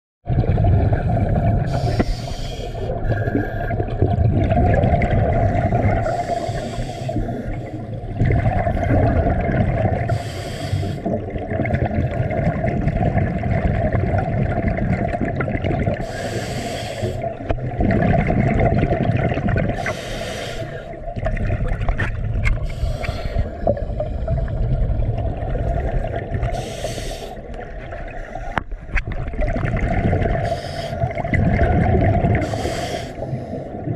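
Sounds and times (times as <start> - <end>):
gurgling exhaled bubbles: 0.3 - 33.9
hissing regulator inhale: 1.6 - 3.8, 6.0 - 7.9, 10.1 - 11.1, 16.0 - 17.3, 19.8 - 21.0, 22.6 - 24.4, 26.5 - 27.4, 30.4 - 31.1, 32.4 - 33.8.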